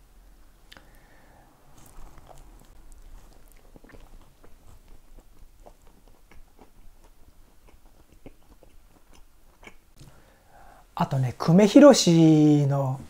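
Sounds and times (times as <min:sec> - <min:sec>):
person chewing crunchy toast: 0:00.7 - 0:10.3.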